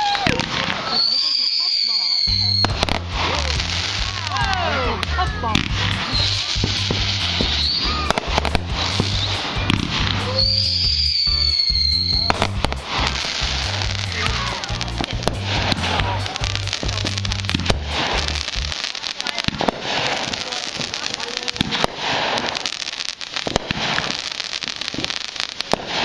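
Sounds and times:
high falling firework whistle: 0:00.0 - 0:04.7, 0:06.0 - 0:14.7
fireworks bursting and crackling: 0:00.0 - 0:26.0
music with steady bass line: 0:02.3 - 0:18.8.

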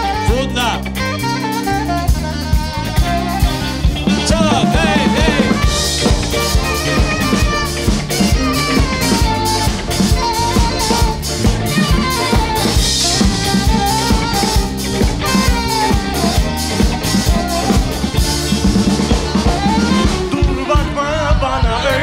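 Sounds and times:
drum kit beat: 0:00.0 - 0:22.0
live band playing: 0:00.0 - 0:22.0.

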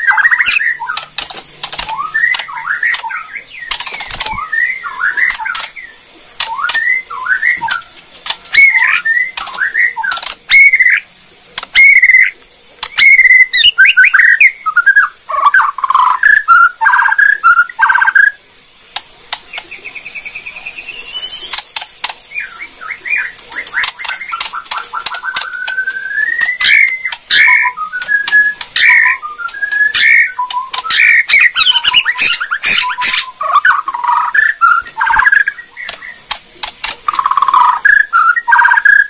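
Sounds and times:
songbird whistling and trilling: 0:00.0 - 0:11.0, 0:11.7 - 0:18.4, 0:19.5 - 0:36.2, 0:37.1 - 0:39.0
sharp bird clicking notes: 0:00.2 - 0:05.8, 0:06.4 - 0:10.9, 0:11.6 - 0:13.7, 0:18.9 - 0:19.8, 0:21.2 - 0:22.3, 0:23.3 - 0:39.0.

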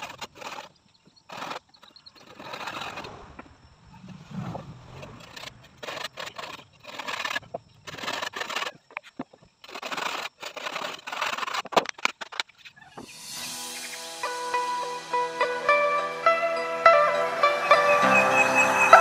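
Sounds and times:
handsaw cutting wood: 0:01.3 - 0:01.6, 0:09.6 - 0:11.8.

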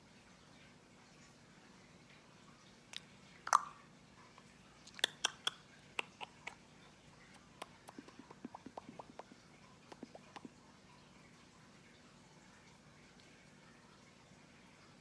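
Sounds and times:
person making clicking noises: 0:04.9 - 0:06.6, 0:07.6 - 0:09.3, 0:09.9 - 0:10.5.

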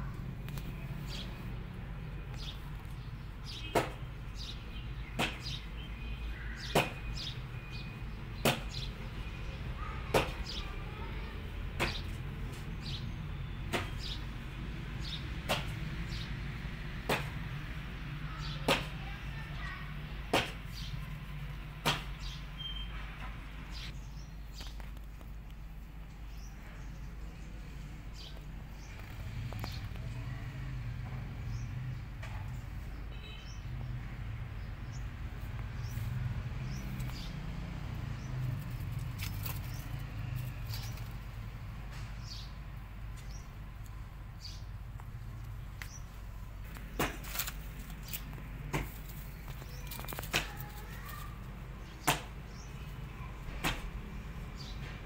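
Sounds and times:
high bird chirps: 0:22.2 - 0:23.0.

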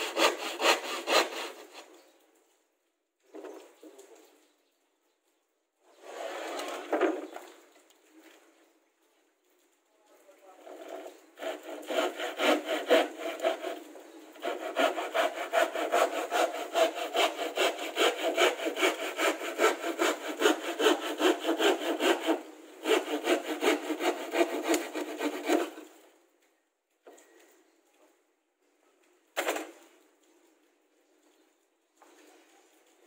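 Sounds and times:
handsaw cutting plywood: 0:00.0 - 0:01.9, 0:11.4 - 0:25.9.

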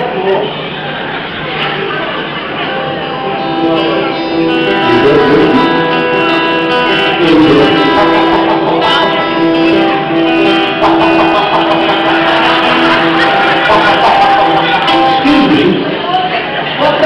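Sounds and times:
acoustic guitar strumming: 0:02.3 - 0:16.0
man singing: 0:03.4 - 0:11.0.

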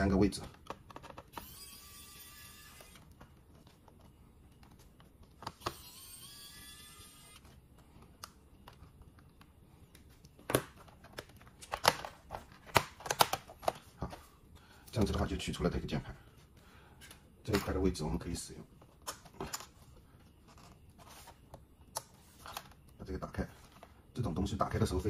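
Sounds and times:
electric screwdriver whirring: 0:01.3 - 0:03.1, 0:05.6 - 0:07.5
plastic clips snapping: 0:10.5 - 0:13.8.

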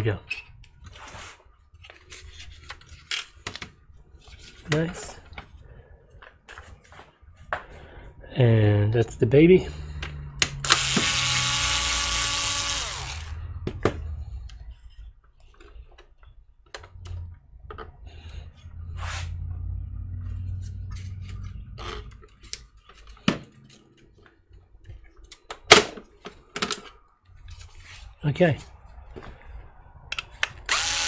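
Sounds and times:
cordless screwdriver running: 0:10.6 - 0:13.4, 0:30.7 - 0:31.0.

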